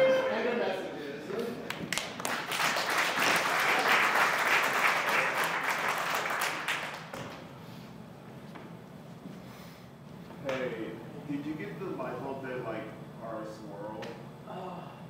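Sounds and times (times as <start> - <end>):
audience applauding: 1.4 - 7.2.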